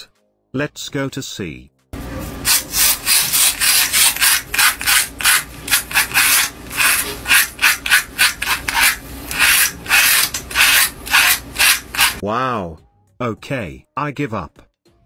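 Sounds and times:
razor scraping stubble: 0:02.5 - 0:12.2.

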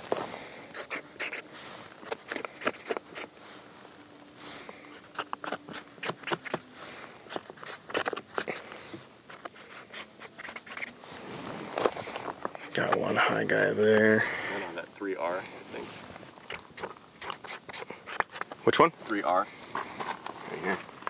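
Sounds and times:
marker pen squeaking on paper: 0:00.7 - 0:03.4, 0:04.9 - 0:06.6, 0:07.3 - 0:08.7, 0:09.3 - 0:11.0, 0:12.4 - 0:13.8, 0:16.4 - 0:18.6.

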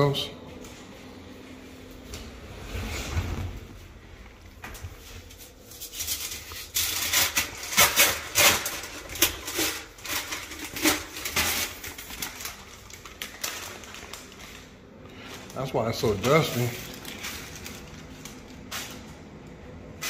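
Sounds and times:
rustling and scraping strokes: 0:02.0 - 0:11.7.

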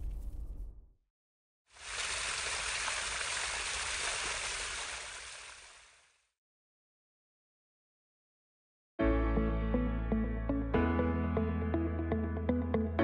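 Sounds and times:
steady rushing water noise: 0:01.8 - 0:06.1.

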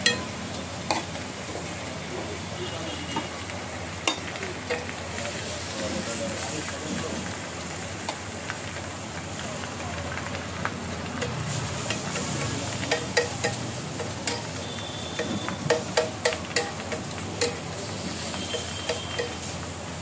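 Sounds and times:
metal spatula clacking on griddle: 0:00.0 - 0:01.1, 0:04.0 - 0:05.0, 0:11.2 - 0:14.6, 0:15.2 - 0:19.5
frying sizzle: 0:00.0 - 0:20.0.

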